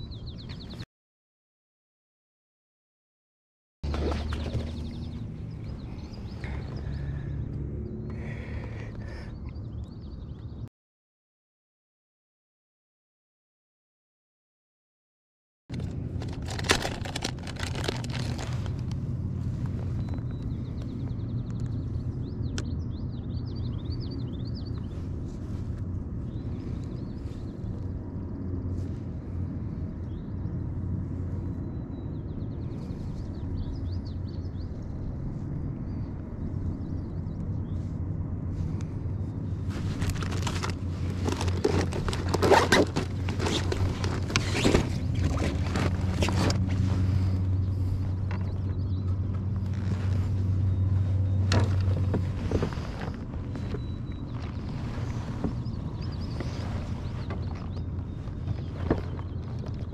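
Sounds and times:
rustling against microphone: 15.7s - 22.1s, 24.4s - 29.8s, 37.6s - 59.9s.

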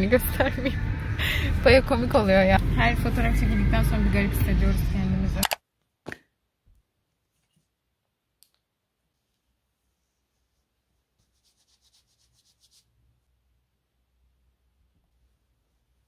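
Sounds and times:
faint ticks and rubbing: 9.1s - 12.9s.

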